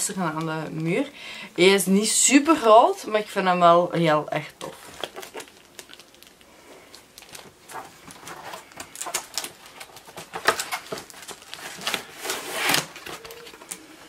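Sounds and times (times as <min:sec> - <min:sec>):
plastic packaging crinkling: 0:04.6 - 0:13.8.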